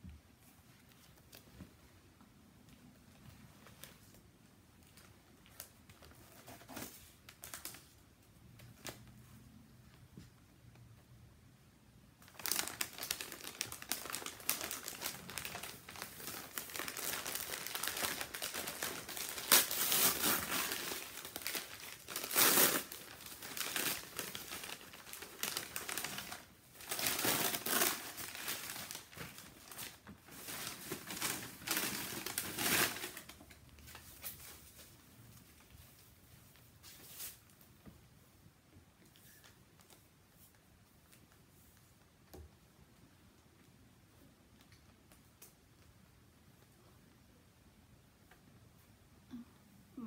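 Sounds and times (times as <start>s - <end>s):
paper wrapping crinkling: 4.8s - 8.0s, 12.2s - 37.5s.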